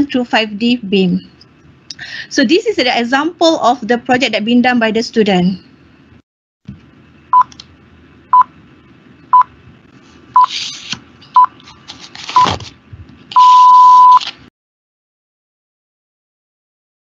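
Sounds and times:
long beep: 13.4s - 14.2s
short high beeps: 13.4s - 14.2s.

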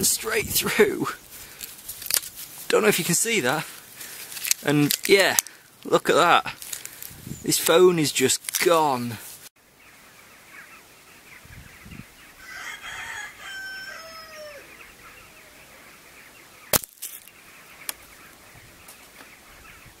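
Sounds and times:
rooster crowing: 12.4s - 14.9s.

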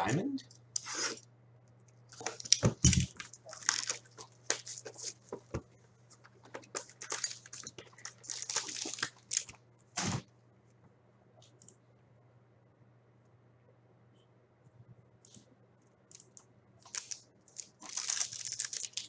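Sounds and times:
low steady hum: 0.0s - 19.0s
wrapping crinkling and tearing: 2.1s - 10.2s, 16.1s - 19.0s.

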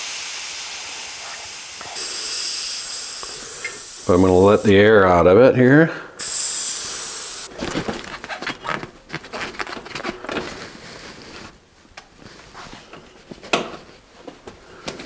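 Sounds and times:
air hissing from tube: 0.0s - 5.0s, 6.2s - 7.5s.

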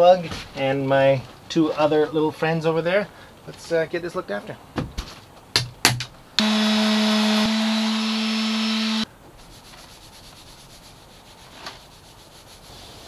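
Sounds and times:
power tool motor humming: 6.4s - 9.1s
rag rubbing on wood: 9.4s - 13.0s.

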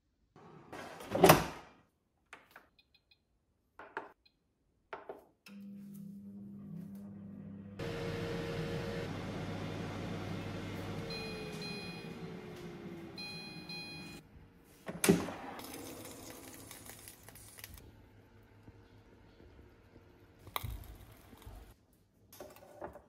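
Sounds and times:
air fryer fan whirring: 5.6s - 21.7s
air fryer beeping: 7.2s - 14.2s.

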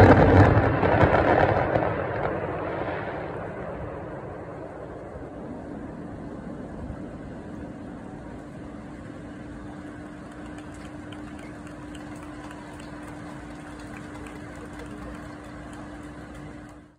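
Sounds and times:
steady mechanical hum: 4.4s - 16.9s.

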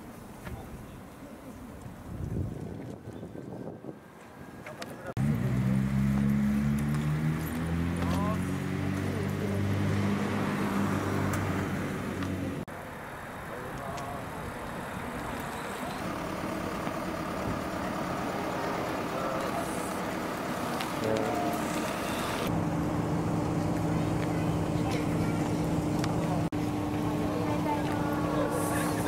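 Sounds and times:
general traffic noise: 0.0s - 29.0s
vehicle engine humming: 4.3s - 29.0s
faint distant voices: 12.8s - 22.5s, 23.6s - 29.0s.

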